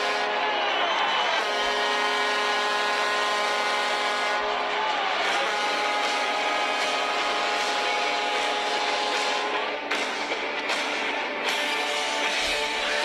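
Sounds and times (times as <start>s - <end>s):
goal horn blaring: 0.0s - 9.9s.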